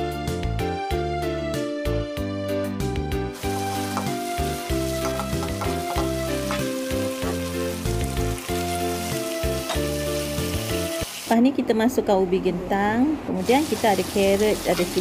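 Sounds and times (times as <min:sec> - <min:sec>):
slow melody with bass: 0:00.0 - 0:11.0
chicken sizzling in a wok: 0:03.3 - 0:11.5, 0:13.4 - 0:15.0.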